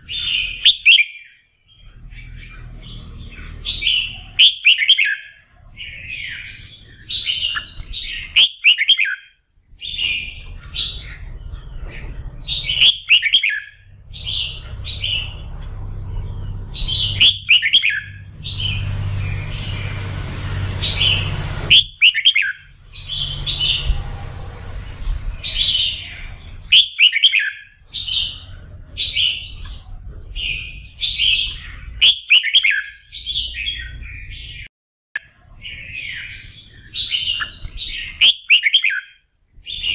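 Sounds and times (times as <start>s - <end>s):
bird singing rapid phrases: 0.0s - 39.9s
low hum: 1.7s - 4.4s, 9.6s - 26.8s.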